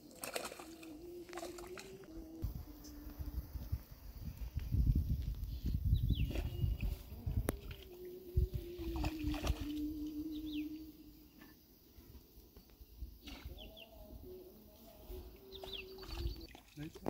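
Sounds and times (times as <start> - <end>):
low steady tone: 0.1 - 12.1
bird chirps: 15.4 - 16.5.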